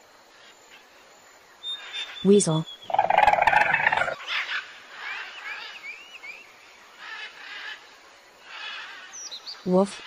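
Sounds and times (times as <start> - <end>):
high animal chirps: 2.7 - 4.2.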